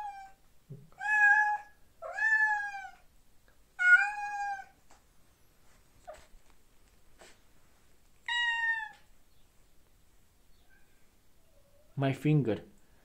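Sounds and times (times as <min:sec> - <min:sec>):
cat meowing: 0:00.0 - 0:03.1, 0:03.8 - 0:04.8, 0:08.2 - 0:09.1.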